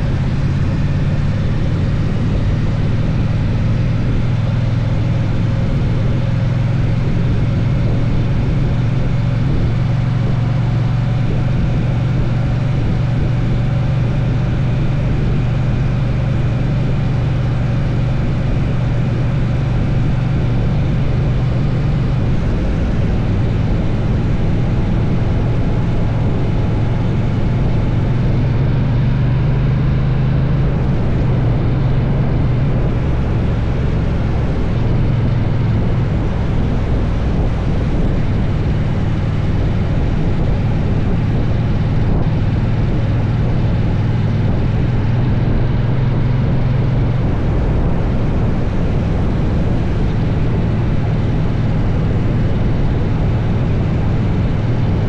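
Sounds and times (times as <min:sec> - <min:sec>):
motorcycle engine cruising: 0:00.0 - 0:55.0.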